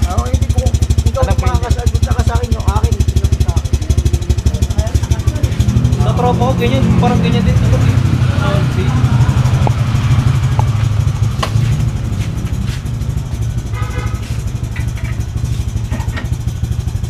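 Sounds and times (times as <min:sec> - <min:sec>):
scooter engine idling: 0:00.0 - 0:17.0.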